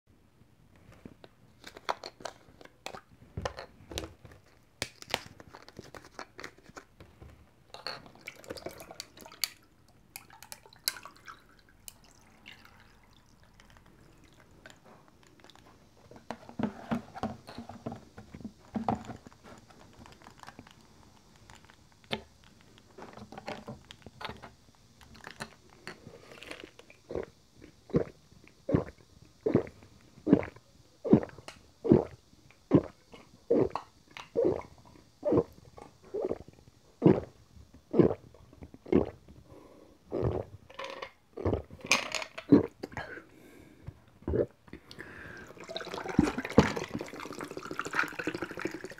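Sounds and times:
gulping: 0:28.7 - 0:39.2, 0:40.1 - 0:40.6, 0:44.2 - 0:44.6
ice clinking: 0:45.4 - 0:48.9
liquid pouring over ice: 0:45.4 - 0:48.9.

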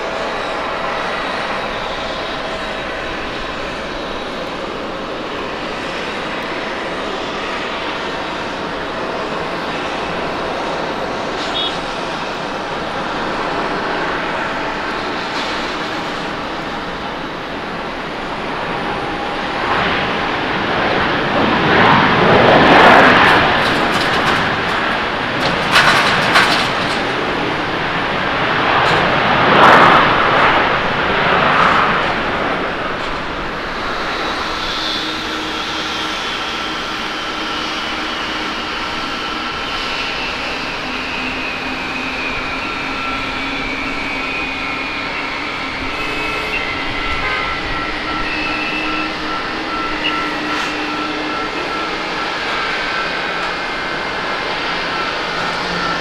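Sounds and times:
jet engines rushing and surging: 0:00.0 - 0:56.0
high engine whine falling in pitch: 0:32.6 - 0:56.0.

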